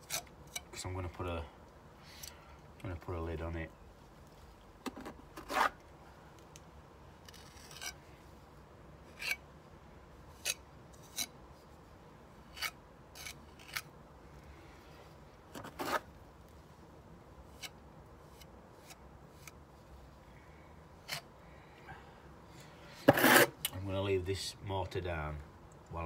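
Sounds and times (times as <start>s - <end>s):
trowel scraping wet mortar: 15.6s - 16.1s, 23.0s - 23.6s.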